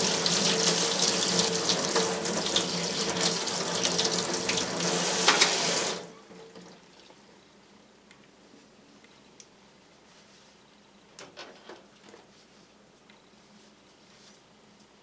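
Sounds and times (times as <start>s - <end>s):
tap water running into sink: 0.0s - 6.8s.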